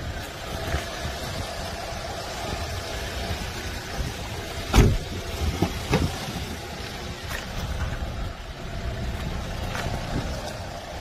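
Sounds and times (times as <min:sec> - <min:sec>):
steady low rumble: 0:00.0 - 0:11.0
car door thump: 0:04.7 - 0:06.4.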